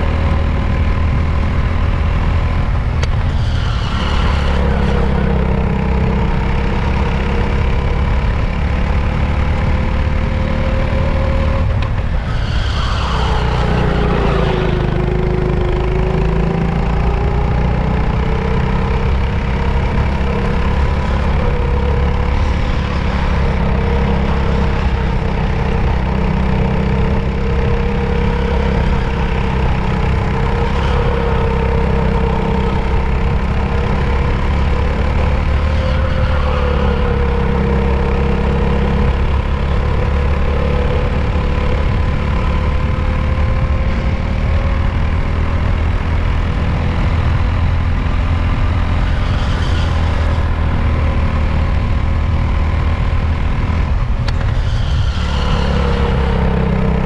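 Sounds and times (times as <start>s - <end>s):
race car engine running: 0.0s - 57.0s
heavy low rumble: 11.0s - 49.3s.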